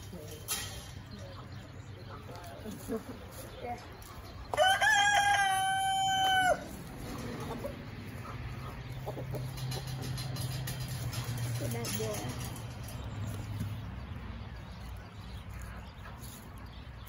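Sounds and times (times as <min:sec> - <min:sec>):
rooster crowing: 0:04.6 - 0:06.7.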